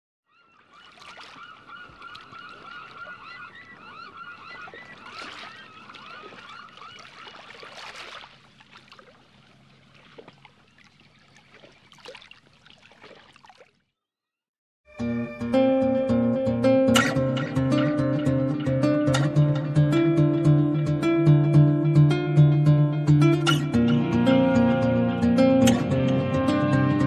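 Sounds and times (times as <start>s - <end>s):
birds calling: 0.3s - 12.6s.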